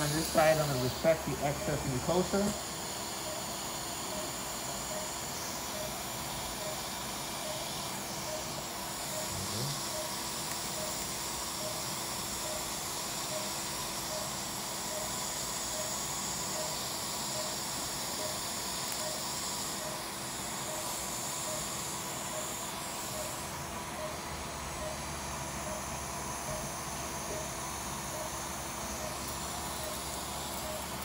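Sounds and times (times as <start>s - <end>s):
smoke evacuator hiss: 0.0s - 23.4s
short electronic beeps: 28.1s - 31.0s.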